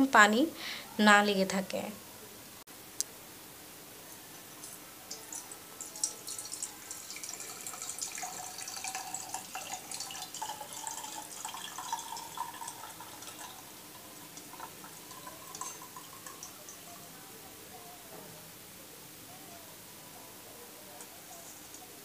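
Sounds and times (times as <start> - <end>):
oil trickling and dripping: 4.5 - 17.0.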